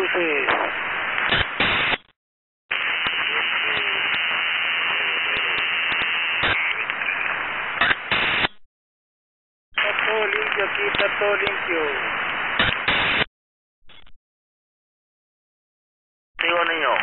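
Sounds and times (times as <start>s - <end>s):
radio static hiss: 0.0s - 2.1s, 2.7s - 8.6s, 9.8s - 13.3s, 16.4s - 17.0s
sharp radio clicks: 0.4s - 2.1s, 2.7s - 7.2s, 7.8s - 8.6s, 9.8s - 11.6s, 12.3s - 13.3s, 16.4s - 17.0s.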